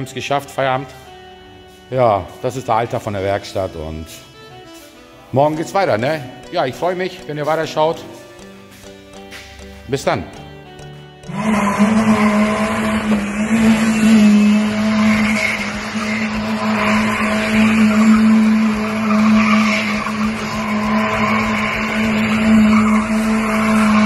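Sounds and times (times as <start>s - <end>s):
car engine at high revs: 11.2s - 24.0s
tyres squealing: 11.2s - 24.0s.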